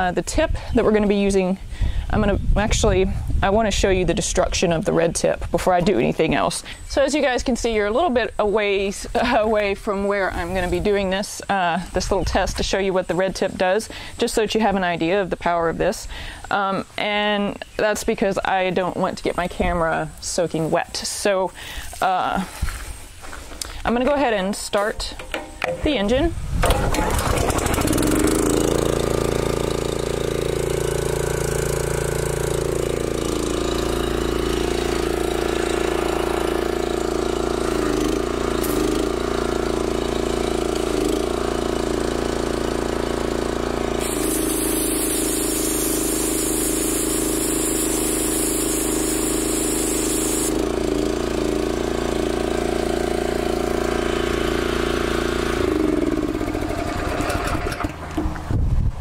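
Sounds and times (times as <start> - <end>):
pressure washer engine running: 26.6 - 58.4
spray jet hissing: 44.0 - 50.6.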